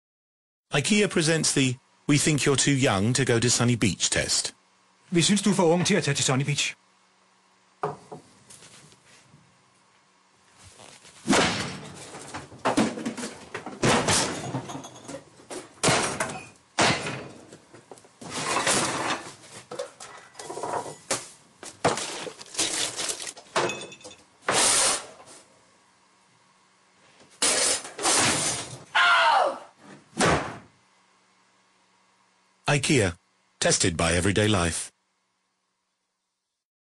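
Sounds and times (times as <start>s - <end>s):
furniture doors and drawers slamming: 30.1s - 30.7s.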